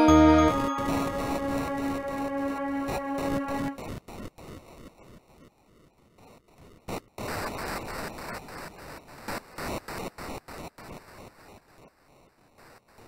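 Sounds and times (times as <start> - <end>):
bursts of electronic white noise: 6.9 - 11.8.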